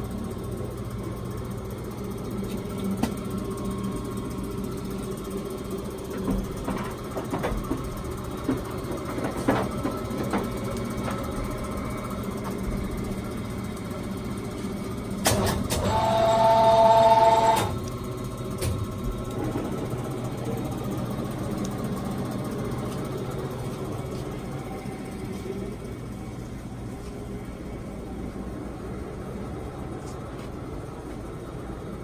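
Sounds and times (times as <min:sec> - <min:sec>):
lathe machine hum: 0:00.0 - 0:32.0.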